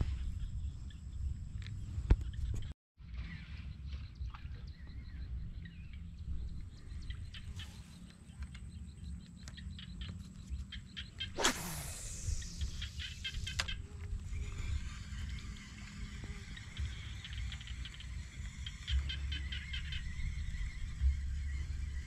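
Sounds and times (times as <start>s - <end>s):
wind rumble on microphone: 0.0s - 22.0s
birds chirping: 4.2s - 22.0s
loud falling sweep: 11.4s - 13.0s.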